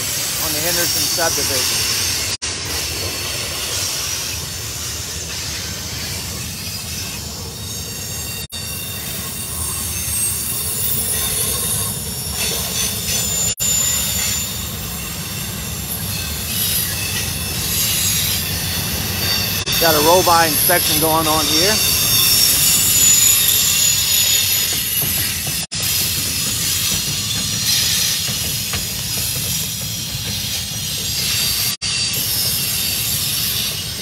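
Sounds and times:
train wheels rumbling on rails: 0.0s - 34.0s
high-pitched wheel squeal: 5.2s - 25.5s.

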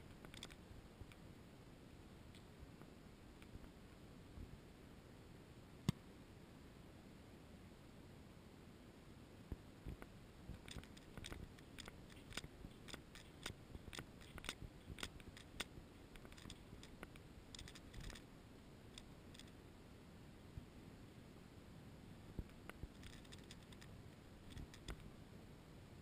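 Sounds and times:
light sharp clicks and ticks: 0.0s - 1.2s, 9.5s - 18.3s, 18.9s - 19.6s, 22.4s - 25.1s.

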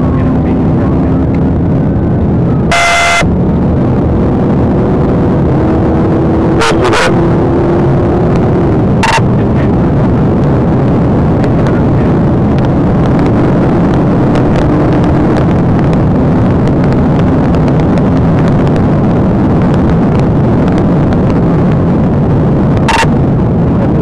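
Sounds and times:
low steady hum: 0.0s - 6.6s
road and wind noise: 0.0s - 24.0s.

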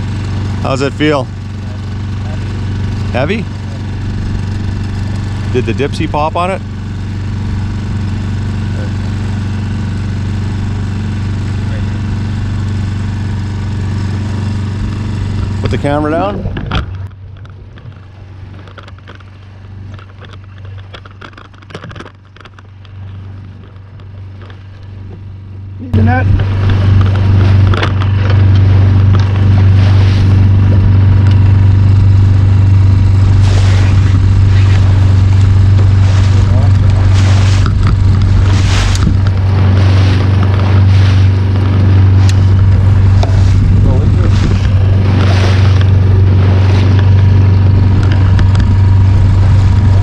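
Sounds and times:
outboard motor humming: 0.0s - 50.0s
wind gusts on microphone: 25.9s - 50.0s.

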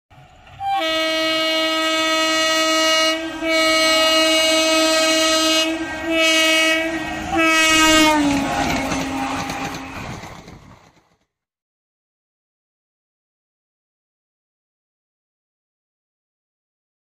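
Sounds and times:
electric locomotive horn blasts: 0.6s - 10.1s.

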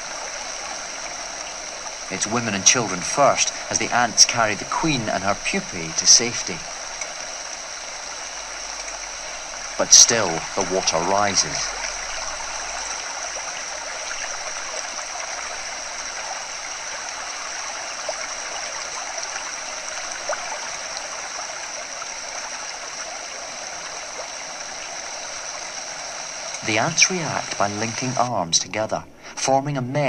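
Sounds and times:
water rushing through a ditch: 0.0s - 28.4s
faint ticks: 6.7s - 7.6s, 8.7s - 9.1s.

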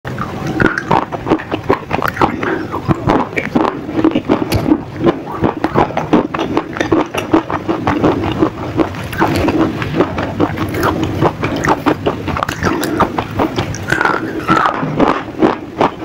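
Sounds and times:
crunching and chewing: 0.1s - 16.0s.

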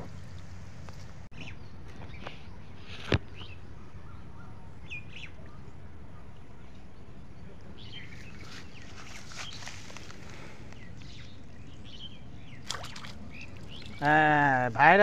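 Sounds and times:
low background rumble: 0.0s - 15.0s
bird chirps: 10.7s - 14.1s.

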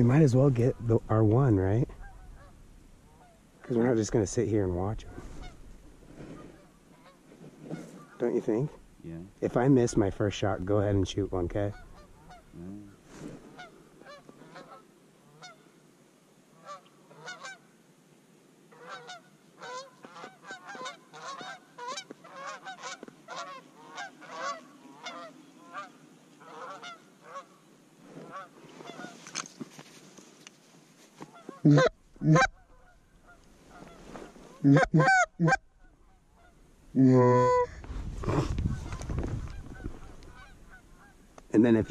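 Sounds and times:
geese honking: 0.0s - 8.8s, 11.0s - 12.6s, 13.5s - 15.6s, 16.6s - 17.6s, 18.7s - 27.6s, 28.2s - 29.2s, 31.3s - 36.6s, 37.3s - 41.8s.

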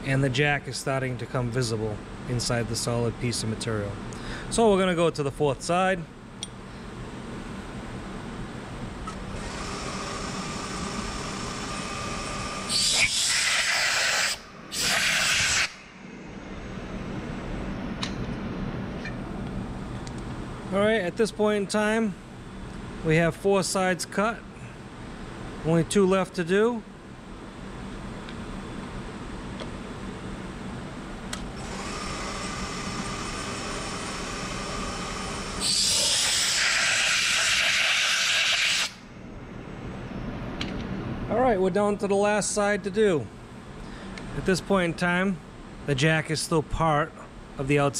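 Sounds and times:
steady machine hum: 0.0s - 47.9s
milling machine humming: 9.1s - 18.6s, 31.2s - 38.9s
compressed air blasting: 12.6s - 16.0s, 31.6s - 39.0s.

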